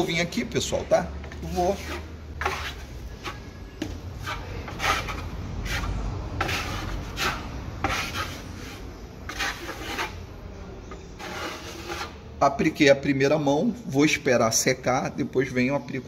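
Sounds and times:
trowel scraping drywall: 1.3 - 3.5, 4.2 - 10.2, 11.2 - 12.2.

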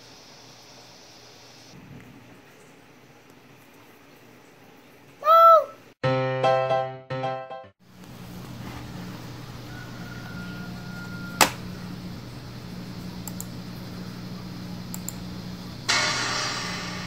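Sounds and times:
sharp click: 11.4 - 11.6, 14.9 - 15.2.

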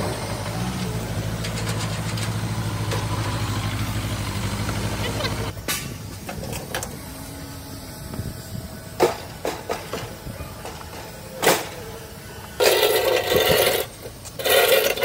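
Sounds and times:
metal barrier scraping concrete: 12.6 - 15.0.

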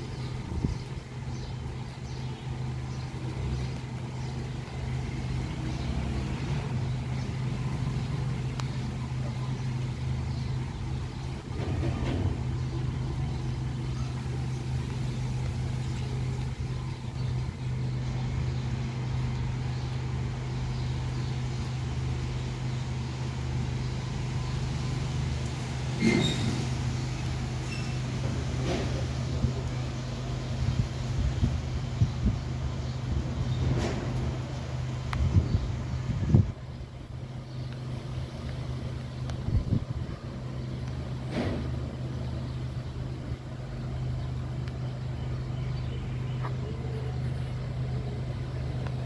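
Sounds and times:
wind buffeting microphone: 0.0 - 4.2, 30.5 - 37.4, 38.0 - 40.5
wind gusting through trees: 0.0 - 49.0.

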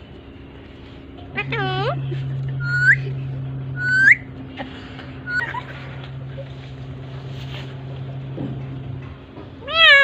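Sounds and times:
low electrical hum: 0.0 - 10.0.

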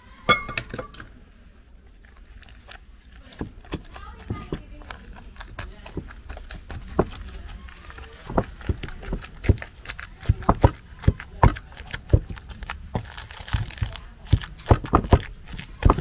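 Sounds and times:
wooden pestle pounding in mortar: 3.2 - 16.0.

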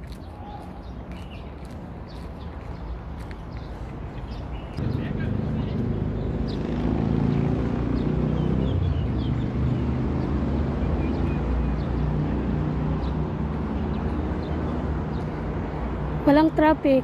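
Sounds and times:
road noise: 0.0 - 17.0
vehicle engine running: 4.8 - 15.3.

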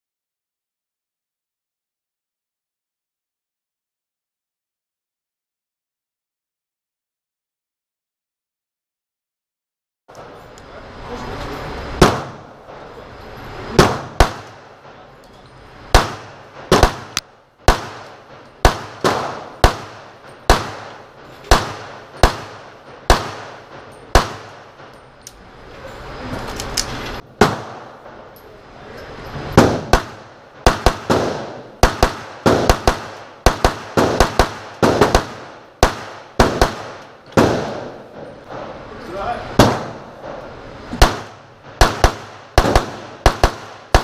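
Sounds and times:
pistol shots with echoes: 12.0 - 12.8, 13.7 - 15.0, 15.9 - 25.0, 27.3 - 28.2, 29.5 - 38.7, 39.5 - 40.4, 41.0 - 44.0.

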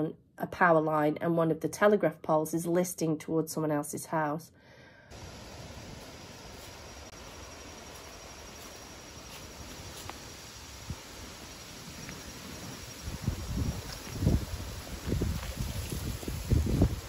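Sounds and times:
insects chirring: 5.1 - 17.0.

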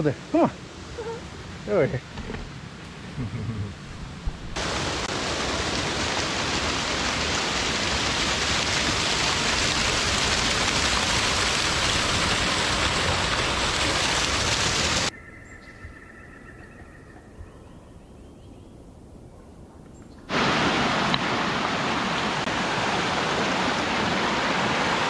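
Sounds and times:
waterfall rushing: 4.6 - 15.1, 20.3 - 25.0.

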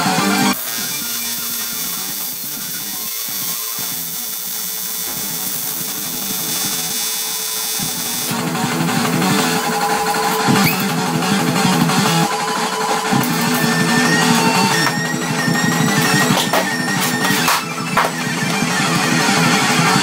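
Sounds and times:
welding arc buzzing: 0.0 - 20.0
background music: 8.3 - 20.0.

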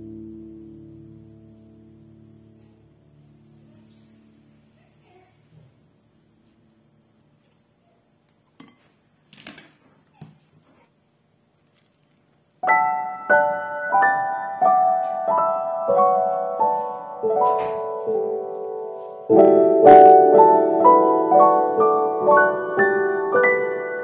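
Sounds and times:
slow piano melody: 0.0 - 5.2, 12.6 - 24.0.

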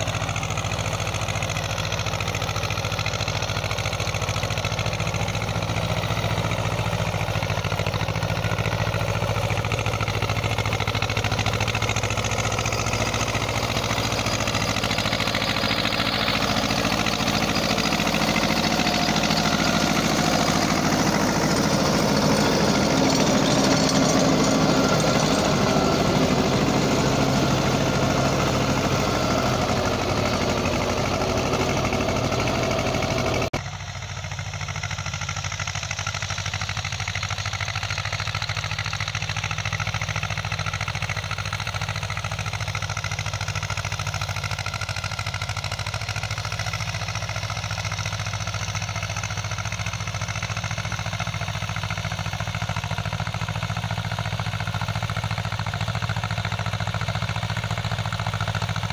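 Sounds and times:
tractor diesel engine running: 0.0 - 58.9.

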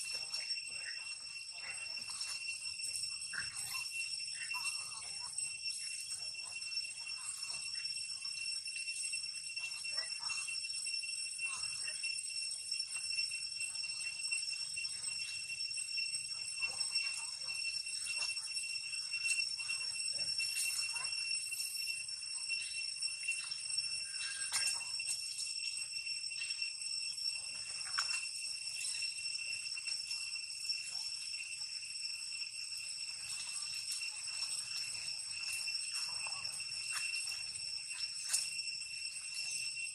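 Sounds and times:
high-pitched insect drone: 0.0 - 39.9
faint scuffs or squeaks: 23.4 - 25.4, 33.3 - 38.6.

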